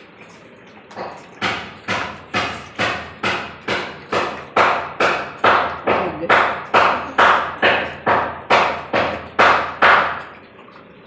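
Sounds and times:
regular sharp knocks: 1.0s - 10.2s.

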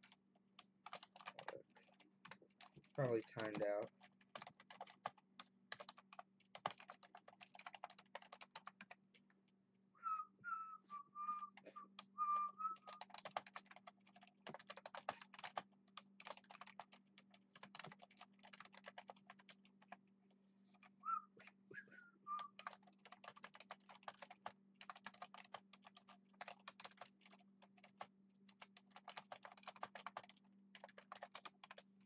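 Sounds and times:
typing on computer keyboard: 0.0s - 9.3s, 12.0s - 20.0s, 22.4s - 32.0s
person whistling: 10.0s - 13.0s, 21.0s - 22.6s.

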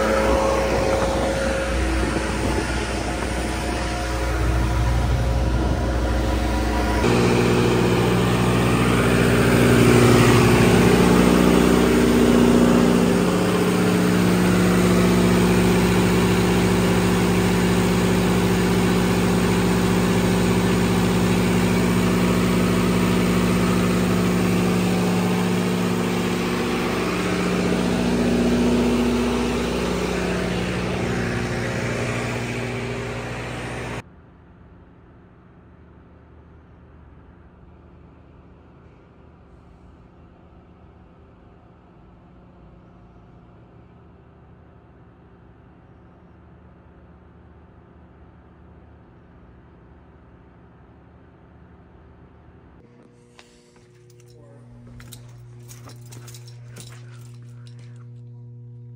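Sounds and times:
generator engine humming: 0.0s - 34.0s, 37.0s - 58.9s.

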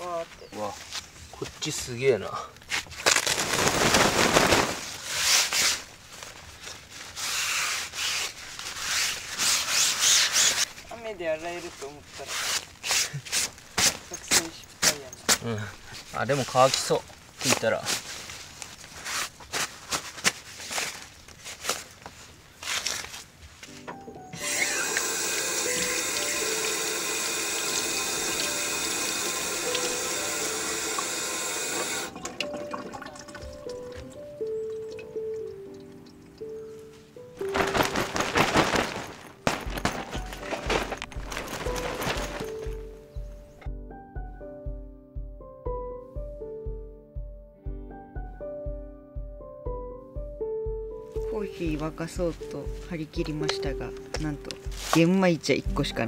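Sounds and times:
cloth rubbing on fabric: 2.7s - 14.6s, 15.9s - 23.8s, 37.4s - 43.0s, 54.6s - 55.2s
tap water running into metal sink: 24.4s - 34.2s.

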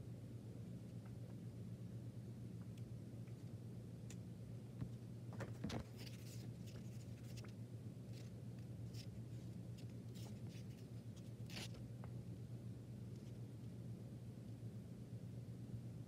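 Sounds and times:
steady low hum: 0.0s - 16.0s
small clicks and rustles: 4.8s - 12.2s.

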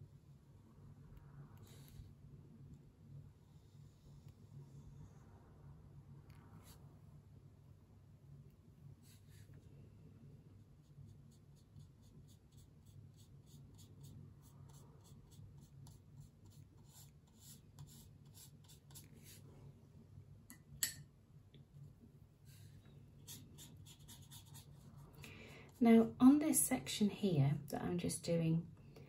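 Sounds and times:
steady low hum: 0.0s - 29.0s
brush strokes on paper: 9.0s - 9.7s, 10.6s - 19.5s, 22.4s - 26.2s.

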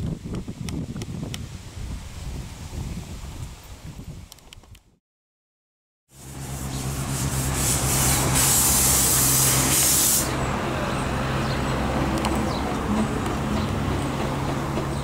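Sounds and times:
steam locomotive hissing: 6.2s - 12.2s.

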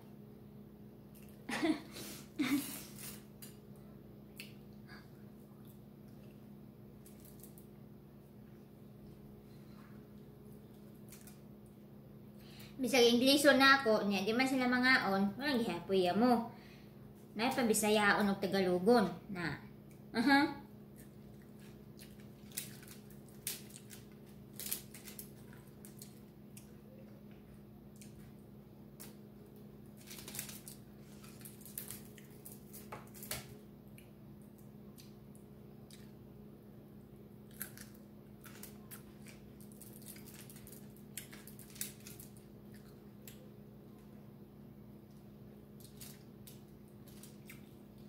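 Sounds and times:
steady low hum: 0.0s - 48.0s
foil crinkling and clicking: 21.6s - 26.2s, 29.9s - 33.5s, 37.5s - 42.5s.

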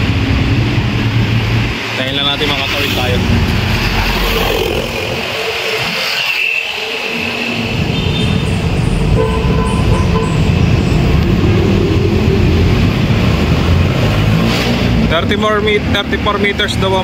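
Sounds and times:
highway traffic rumble: 0.0s - 17.0s.

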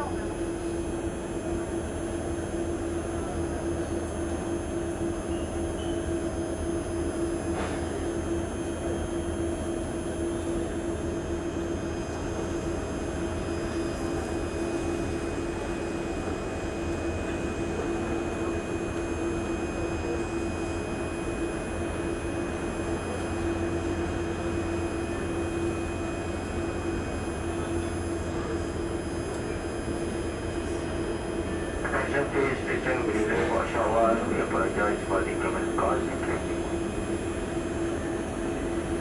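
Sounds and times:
train humming at station: 0.0s - 39.0s.

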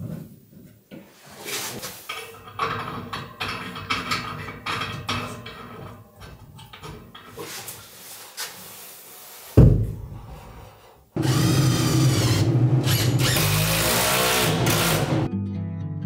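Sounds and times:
cordless drill driving screws: 11.2s - 15.2s.

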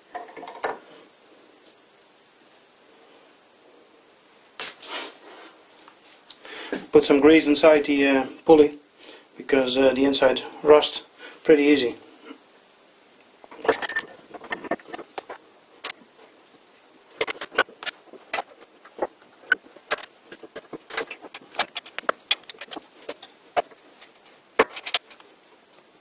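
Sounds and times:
metallic clicks and clinks: 13.5s - 16.0s, 17.2s - 23.7s, 24.6s - 25.3s.

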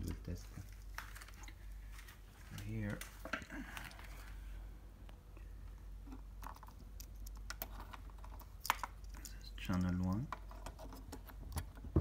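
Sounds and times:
plastic connectors clicking: 6.1s - 11.8s.

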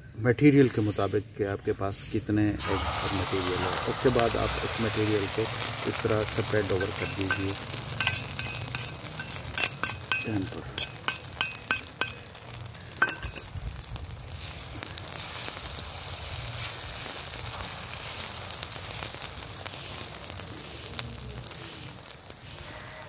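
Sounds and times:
egg sizzling on griddle: 2.0s - 23.0s
knife tapping metal griddle: 6.8s - 13.5s.

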